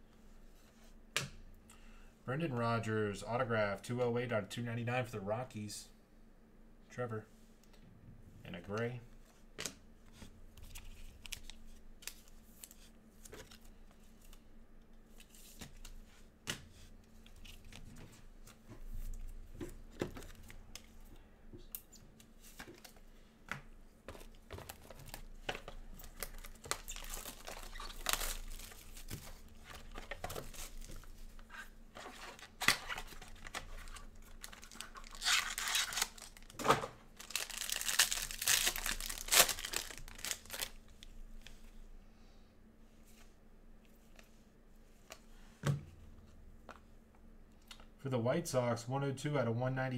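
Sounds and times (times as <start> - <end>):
plastic wrapper tearing and crinkling: 24.5 - 31.0, 32.6 - 36.6, 37.2 - 41.0.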